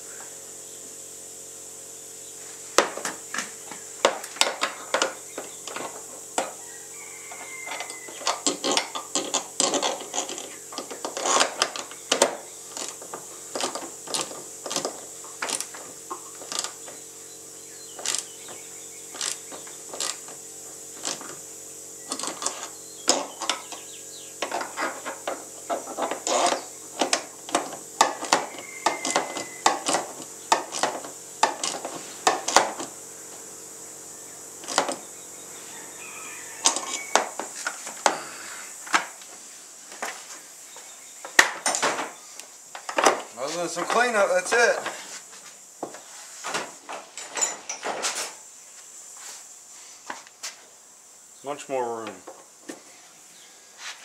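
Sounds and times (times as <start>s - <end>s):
steady hum: 0.0s - 54.0s
hand tools clicking and tapping: 2.8s - 6.6s, 7.3s - 17.0s, 18.0s - 20.4s, 21.0s - 21.4s, 22.1s - 32.9s, 34.6s - 35.0s, 41.2s - 45.0s.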